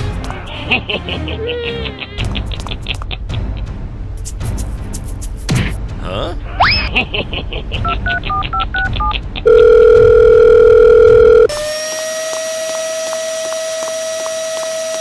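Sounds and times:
touch-tone keypad beeps: 0:08.3 - 0:11.5
loud steady phone tone: 0:09.5 - 0:11.5.

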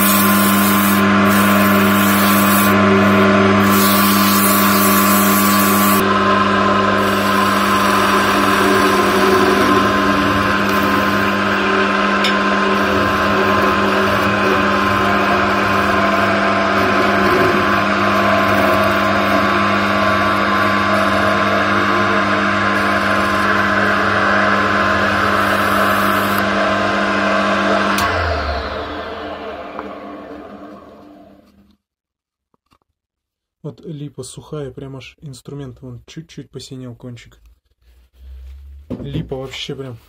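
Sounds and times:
sandpaper hissing on wood: 0:00.0 - 0:02.8, 0:03.6 - 0:06.0
wood lathe motor humming: 0:00.0 - 0:31.6.

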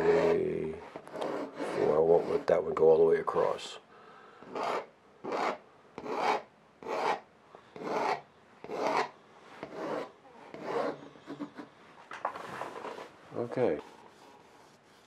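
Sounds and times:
pencil scraping on painting: 0:00.0 - 0:02.7, 0:04.4 - 0:11.8, 0:13.8 - 0:15.0.

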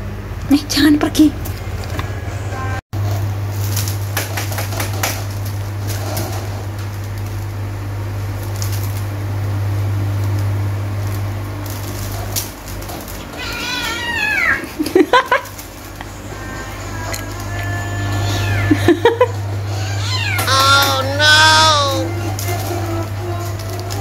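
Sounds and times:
kitten meowing: 0:13.3 - 0:14.6, 0:19.8 - 0:22.1.

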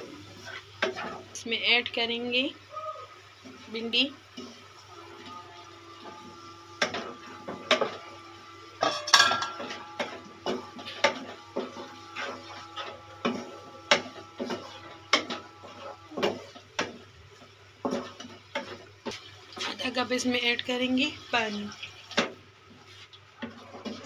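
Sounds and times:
wooden spatula scraping a pan: 0:08.8 - 0:19.9, 0:22.2 - 0:24.0.

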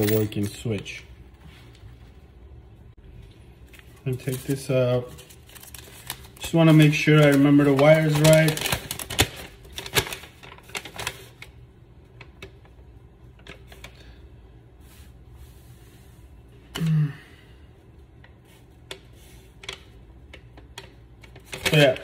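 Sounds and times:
paper rustling: 0:03.7 - 0:11.5.

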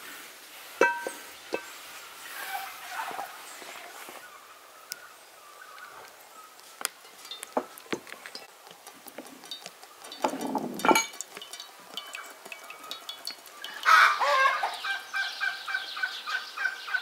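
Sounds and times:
small clicks and ticks: 0:06.6 - 0:14.0
oil pouring into metal pan: 0:08.3 - 0:14.8.

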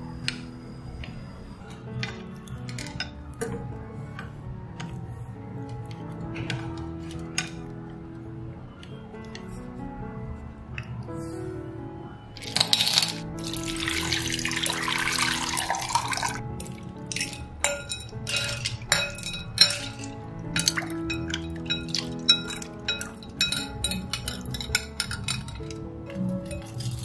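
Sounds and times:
soft background music: 0:00.0 - 0:27.0
water pouring over ice: 0:12.4 - 0:25.7
ice clinking against glass: 0:12.4 - 0:25.8.

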